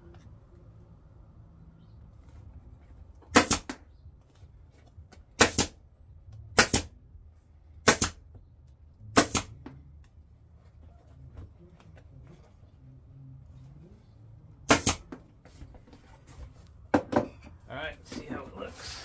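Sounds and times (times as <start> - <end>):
staple gun firing: 9.2 - 9.5, 14.7 - 15.0.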